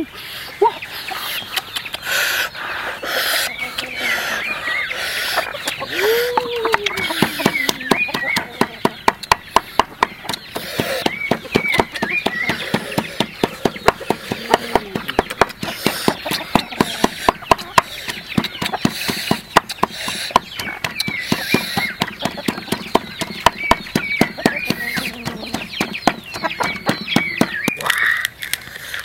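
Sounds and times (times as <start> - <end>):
chickens clucking: 0.0 - 29.0
sharp knocks: 6.3 - 27.8.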